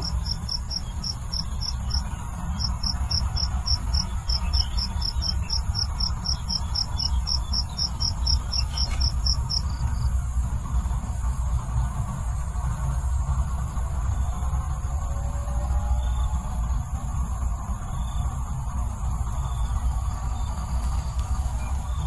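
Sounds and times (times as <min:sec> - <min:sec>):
cricket chirping: 0:00.0 - 0:10.3
low steady rumble: 0:00.0 - 0:22.0.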